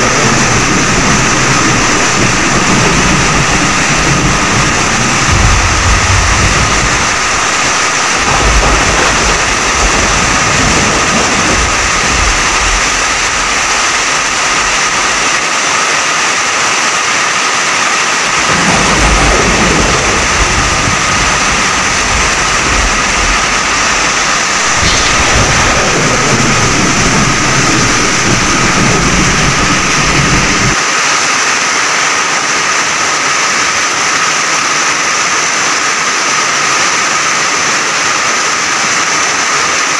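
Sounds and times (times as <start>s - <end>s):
deep storm rumbling: 0.0s - 31.1s
heavy rain hissing: 0.0s - 39.9s.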